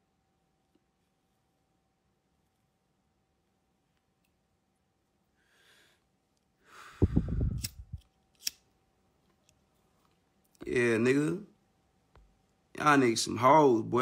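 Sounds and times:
breathy exhale into microphone: 6.6s - 7.8s.

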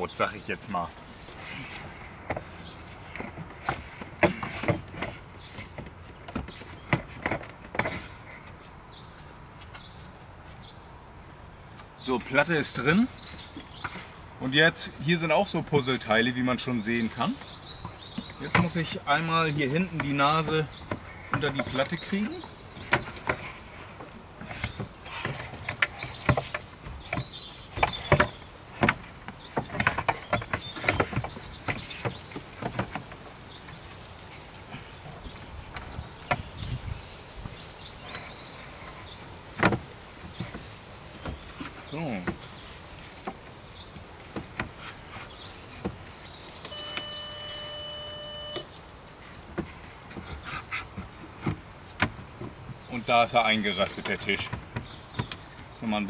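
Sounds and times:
wood knocking and scraping: 0.0s - 10.6s, 11.7s - 56.0s
steady squeak: 17.0s - 33.2s, 44.7s - 48.8s.

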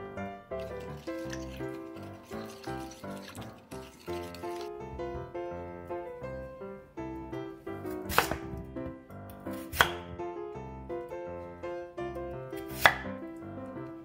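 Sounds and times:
light background music: 0.0s - 14.0s
knife chopping on wooden board: 7.9s - 8.6s, 9.5s - 10.0s, 12.6s - 13.1s.

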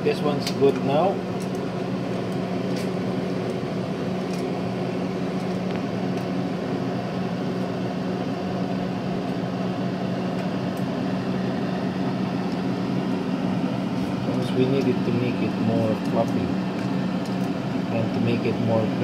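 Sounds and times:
fan hum: 0.0s - 19.0s.

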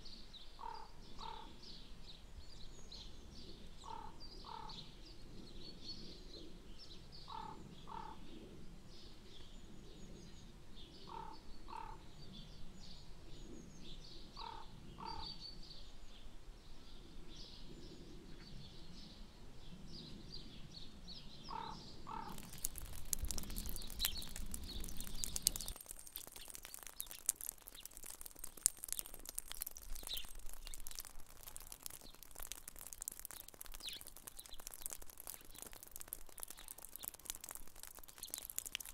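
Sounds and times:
small birds chirping: 0.5s - 4.8s, 21.3s - 38.9s
crackle of melting ice and snow: 22.1s - 38.9s.

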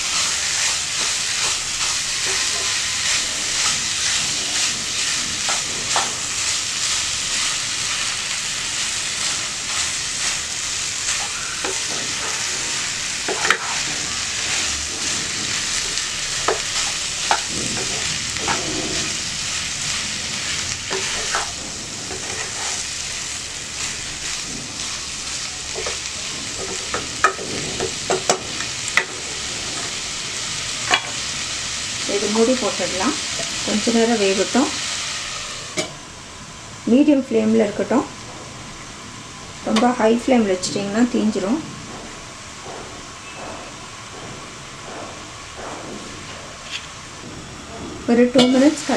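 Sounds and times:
food sizzling in a pan: 0.0s - 36.0s, 48.1s - 48.9s
wooden spatula scraping pan: 20.3s - 22.9s.

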